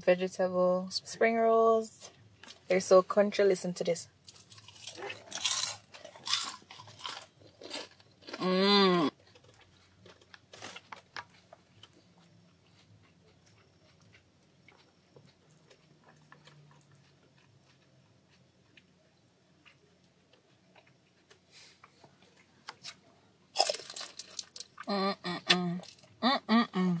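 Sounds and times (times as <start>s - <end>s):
crisp crunching of food: 4.2s - 18.9s, 19.6s - 25.0s, 25.8s - 26.2s
quiet chewing with clicks: 9.1s - 24.9s
person humming: 24.9s - 27.0s.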